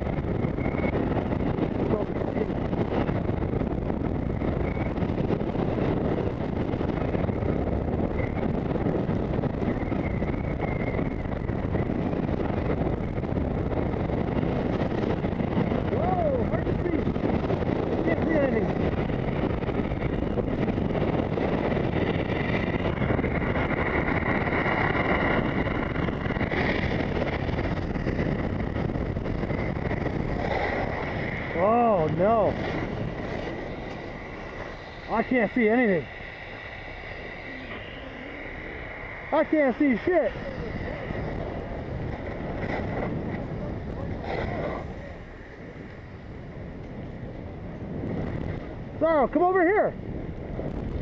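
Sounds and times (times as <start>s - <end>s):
wind noise on microphone: 0.0s - 51.0s
skis scraping over snow: 29.5s - 36.1s, 39.4s - 46.2s.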